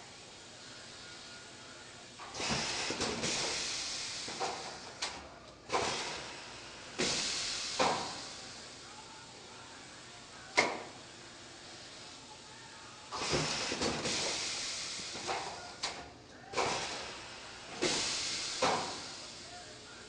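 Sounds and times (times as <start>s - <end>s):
air hiss bursts: 2.2s - 5.0s, 5.7s - 8.6s, 13.1s - 16.0s, 16.6s - 19.6s.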